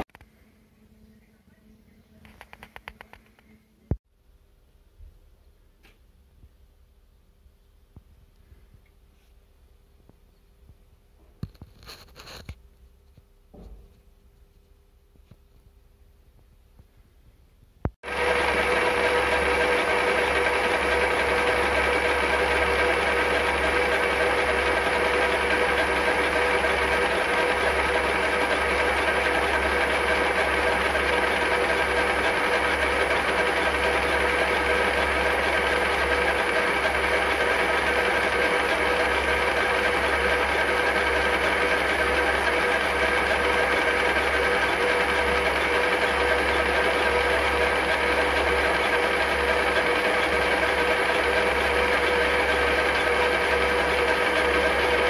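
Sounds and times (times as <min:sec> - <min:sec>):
lathe gear whine: 0:18.0 - 0:55.0.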